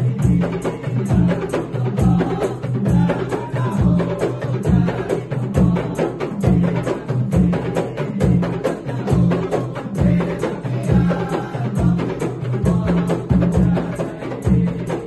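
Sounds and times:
hand drums beating: 0.0s - 15.0s
voices chanting: 0.0s - 15.0s.

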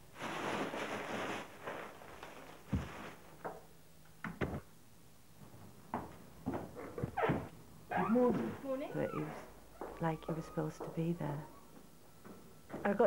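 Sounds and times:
bag rustling: 0.0s - 3.4s
soft knocks and thumps: 4.2s - 4.7s.

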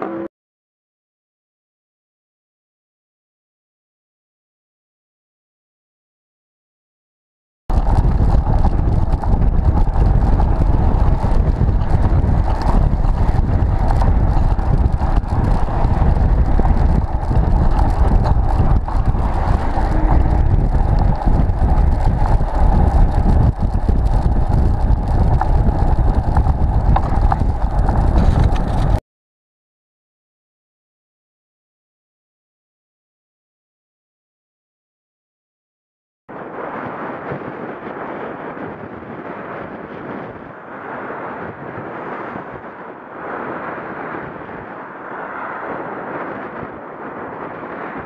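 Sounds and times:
road and traffic noise: 7.7s - 29.0s
wind buffeting microphone: 7.7s - 29.0s, 36.3s - 48.0s.

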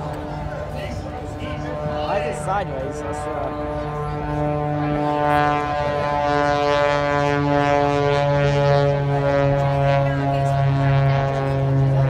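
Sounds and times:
propeller plane engine droning: 0.0s - 12.0s.

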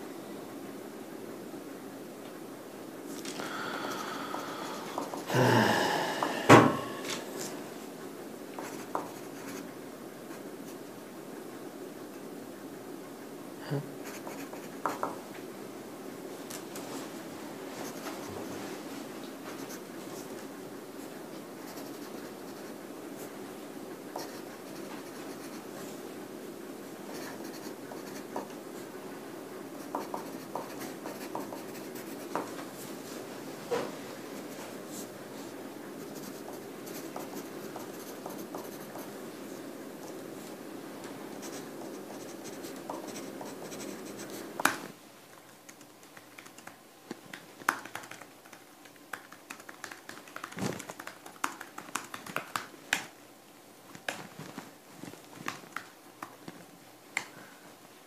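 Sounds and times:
handwriting scratching on paper: 8.6s - 9.7s, 14.0s - 15.1s, 21.6s - 22.8s, 24.1s - 25.7s, 27.1s - 28.9s, 29.8s - 32.6s, 34.4s - 39.1s, 41.4s - 44.6s.

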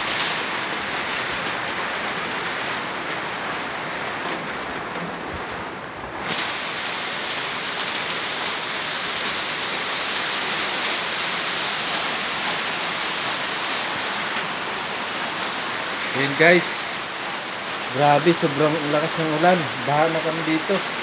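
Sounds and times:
heavy rain splashing onto water: 0.0s - 21.0s.

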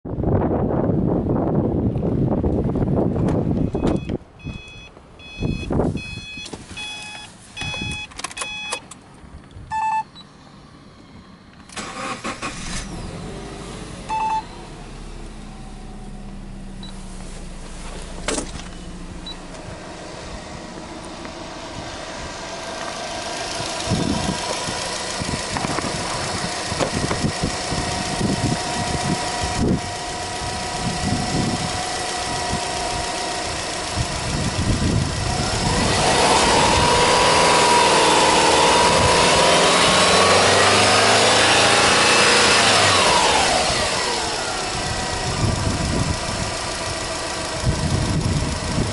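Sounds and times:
car engine cranking and idling: 0.2s - 48.9s
dashboard warning chimes beeping: 3.7s - 8.9s, 9.7s - 10.3s, 14.1s - 14.7s.

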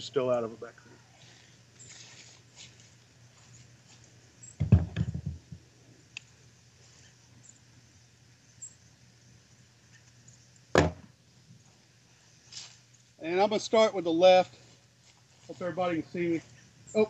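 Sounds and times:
sharp knock: 10.8s - 11.0s.

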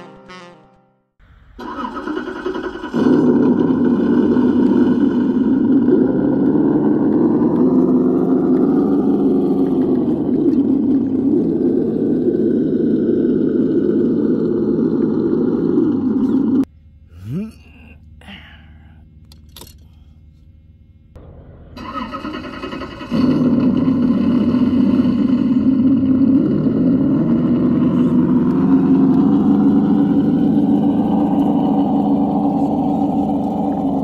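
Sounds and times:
simulated engine idling: 1.5s - 34.0s.

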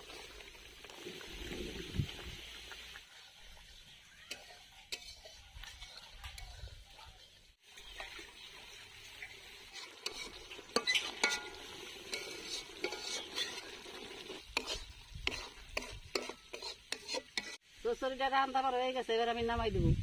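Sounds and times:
curry sizzling: 0.0s - 18.7s
metal spatula scraping wok: 4.3s - 6.5s, 9.2s - 17.6s.

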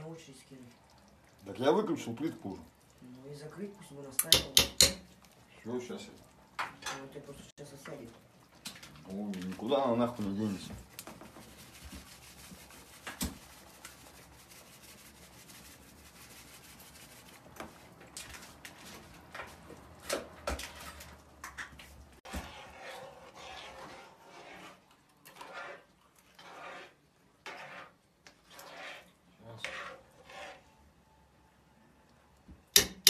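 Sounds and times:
utensil knocking metal pot: 4.2s - 5.1s, 32.7s - 33.0s
spoon scraping container: 20.6s - 30.8s.

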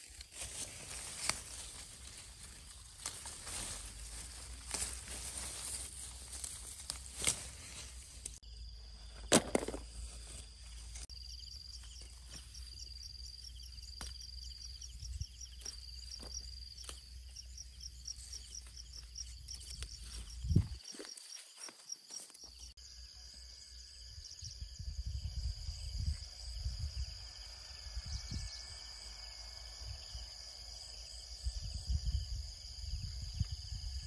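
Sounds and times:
leaves rustling: 0.0s - 8.4s
insect call with rapid pulsing: 0.0s - 34.0s
stems snapping: 0.1s - 8.4s, 14.0s - 14.2s.

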